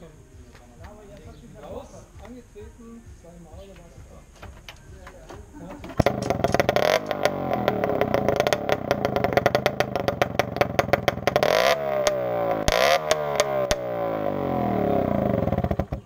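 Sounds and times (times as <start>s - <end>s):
two-stroke moped engine revving: 6.0s - 16.0s.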